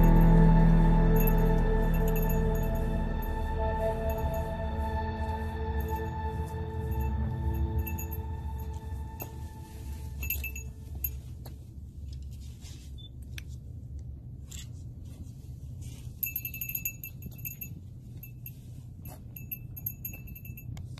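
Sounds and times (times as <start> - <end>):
metallic jingling: 0.0 - 4.6, 5.7 - 9.5, 10.1 - 11.2, 16.2 - 20.7.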